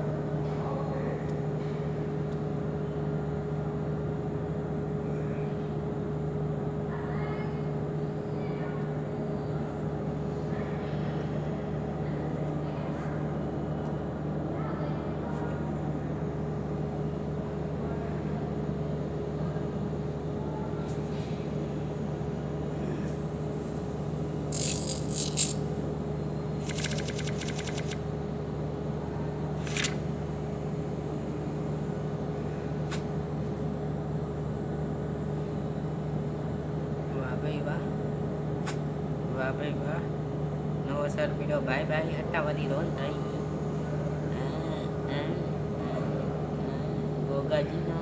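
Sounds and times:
machine hum: 24.4s - 25.8s, 26.4s - 28.2s
sharp clicks: 24.5s - 25.6s, 26.6s - 28.0s, 29.6s - 30.0s
short rapid rattle: 24.5s - 25.6s, 26.6s - 28.0s.

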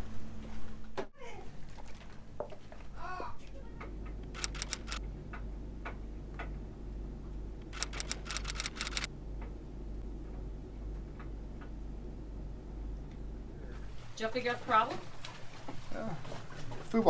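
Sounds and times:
steady low hum: 0.0s - 17.0s
laptop keyboard typing: 4.4s - 5.0s, 7.8s - 9.1s.

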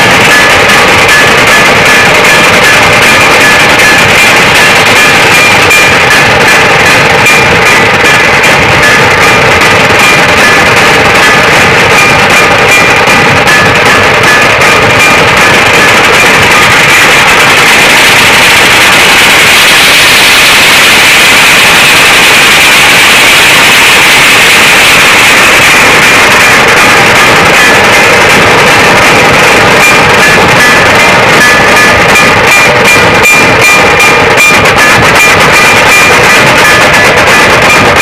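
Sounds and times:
tasha drums: 0.0s - 27.6s
massed barrel drums beaten fast: 0.0s - 38.0s.

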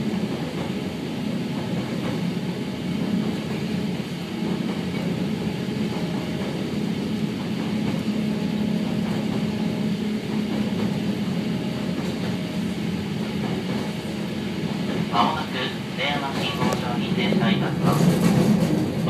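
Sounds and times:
electric train rumbling in tunnel: 0.0s - 19.0s.

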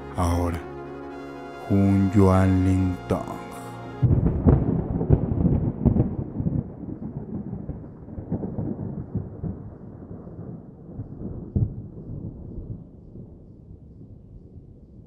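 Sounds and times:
deep rolling rumble with cracks: 4.0s - 13.6s.

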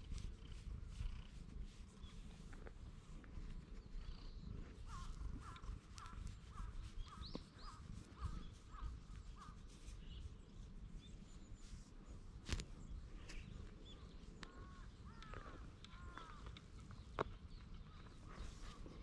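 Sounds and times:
cat purring: 0.0s - 11.3s
bird calling: 4.0s - 9.6s, 13.4s - 16.6s.

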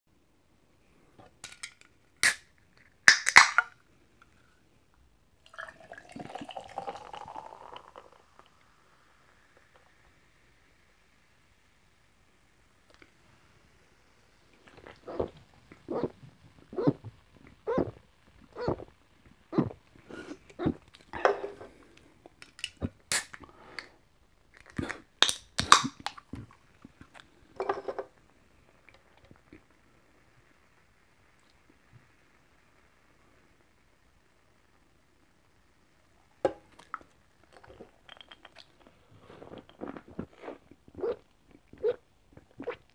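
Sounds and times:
can clicks: 1.4s - 3.7s, 24.6s - 26.2s
can popping open with fizz: 1.4s - 3.8s, 22.4s - 23.9s, 24.5s - 26.5s
can ring-pull opening: 3.1s - 3.7s
person gulping soda: 5.4s - 10.0s, 14.5s - 28.2s, 36.5s - 42.9s
soda pouring and fizzing: 5.4s - 11.5s.

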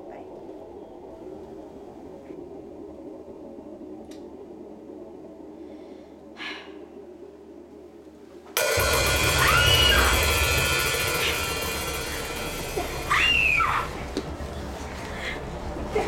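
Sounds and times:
loud jump-scare burst with screech: 8.8s - 14.0s.

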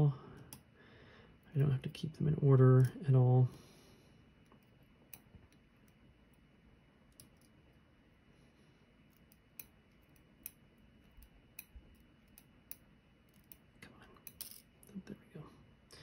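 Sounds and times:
small metal clicks: 9.1s - 14.9s.

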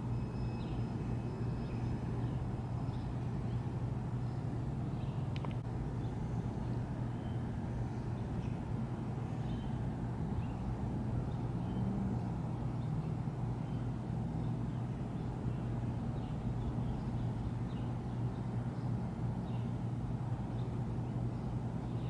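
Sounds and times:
faint high chirps: 0.0s - 3.2s
low mechanical hum: 0.0s - 22.0s.

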